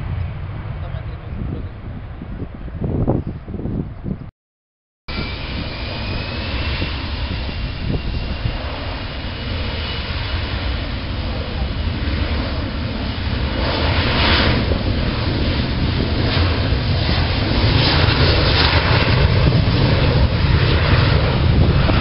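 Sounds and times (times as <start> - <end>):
jet engine roar: 0.0 - 4.1, 5.1 - 22.0
high engine whine: 5.1 - 22.0.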